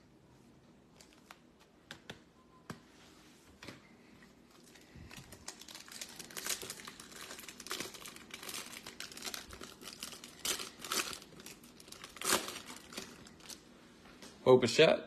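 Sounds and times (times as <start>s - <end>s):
foil wrapper crinkling and tearing: 4.6s - 13.6s.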